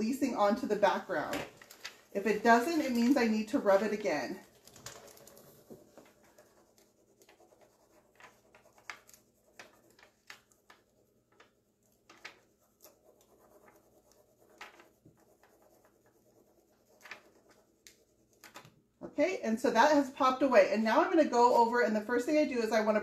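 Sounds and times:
scratching on plastic sheet: 0:00.3 - 0:18.6.

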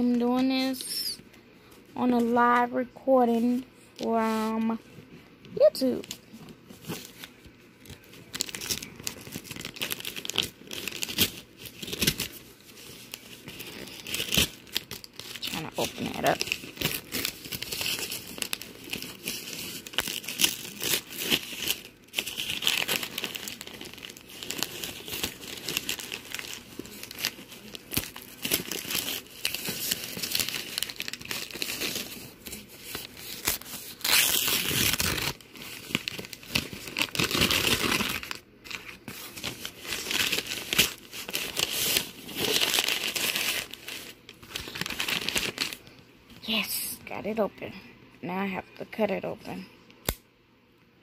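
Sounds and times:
wrapping paper crinkling: 0:05.5 - 0:47.2
paper ripping: 0:06.8 - 0:45.8.

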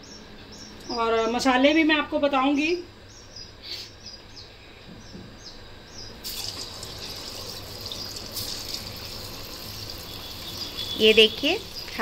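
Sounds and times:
food sizzling in hot oil: 0:06.2 - 0:12.0.

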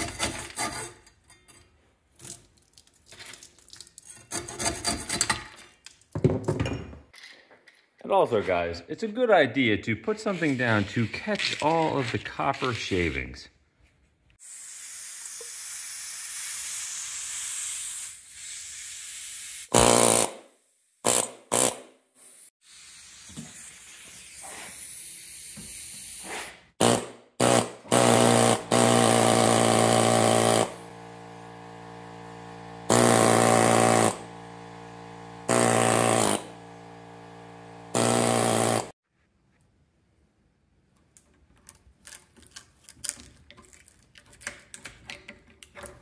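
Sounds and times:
pneumatic air chisel hammering: 0:14.4 - 0:22.0, 0:23.3 - 0:39.0.

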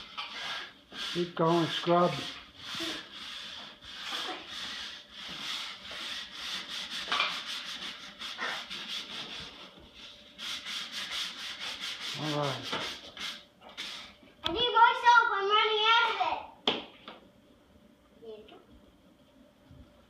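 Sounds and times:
scrubber rasping on tile floor: 0:00.0 - 0:14.1.

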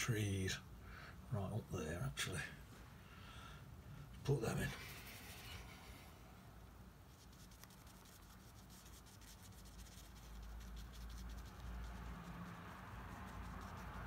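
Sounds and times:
low steady hum: 0:00.0 - 0:14.0
brush scratching on paper: 0:04.4 - 0:06.2, 0:07.1 - 0:14.0.

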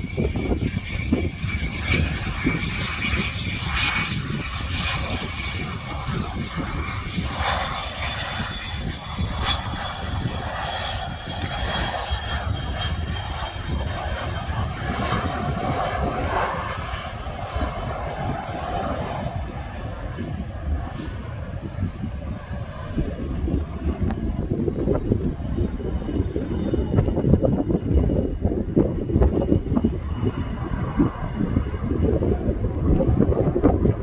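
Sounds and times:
jet engines whining: 0:00.0 - 0:34.0
low rumble: 0:00.0 - 0:34.0.

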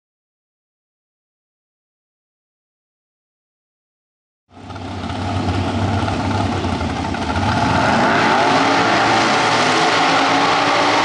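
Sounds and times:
dragster engine revving: 0:04.6 - 0:11.0.

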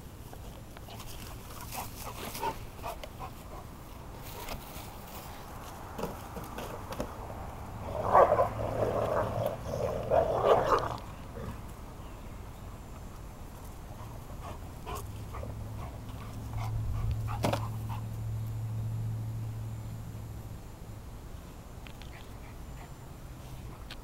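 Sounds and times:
dogs growling in play: 0:07.8 - 0:11.7.

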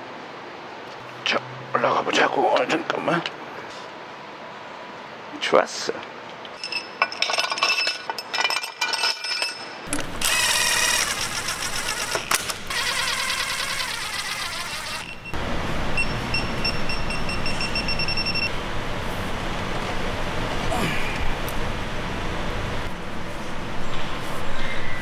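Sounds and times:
metallic clinks of parts: 0:06.5 - 0:10.1
cordless drill driving bolts: 0:10.0 - 0:15.3.

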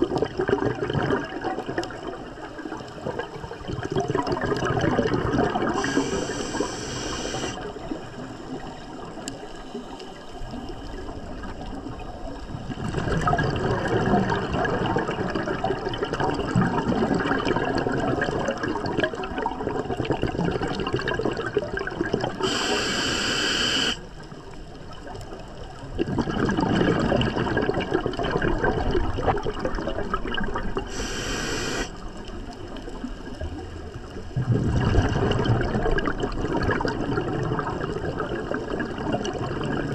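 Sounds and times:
bubbling exhalation: 0:00.0 - 0:02.2, 0:03.1 - 0:07.6, 0:12.8 - 0:24.0, 0:26.0 - 0:31.9, 0:34.4 - 0:39.9
hissing regulator inhalation: 0:05.7 - 0:07.6, 0:22.4 - 0:24.0, 0:30.9 - 0:32.0.

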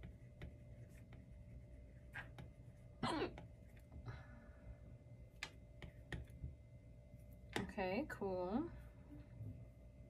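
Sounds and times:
stylus tapping on tablet screen: 0:05.4 - 0:06.6.

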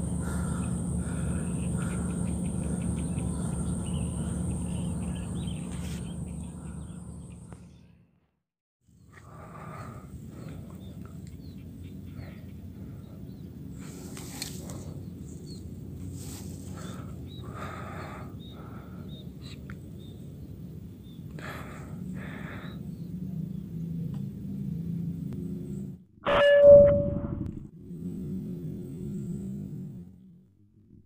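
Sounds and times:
short ringing tone: 0:26.2 - 0:27.6.

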